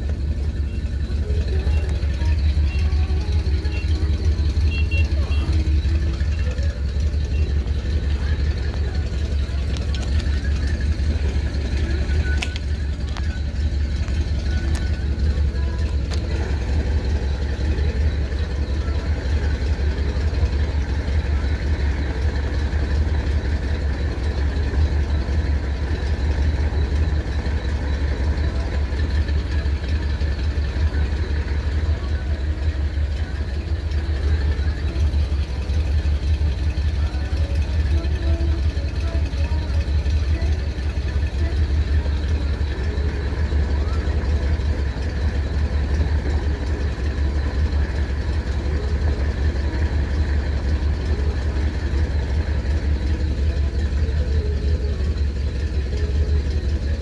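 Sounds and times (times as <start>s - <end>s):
engine idling: 0.0s - 57.0s
faint clicks: 9.6s - 10.5s, 12.2s - 15.1s.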